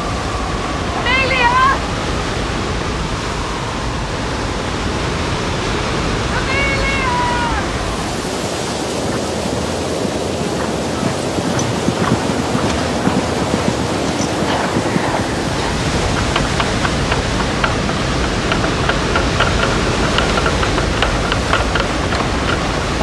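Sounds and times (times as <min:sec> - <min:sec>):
storm wind blowing hard: 0:00.0 - 0:23.0
light irregular rattling: 0:07.7 - 0:23.0.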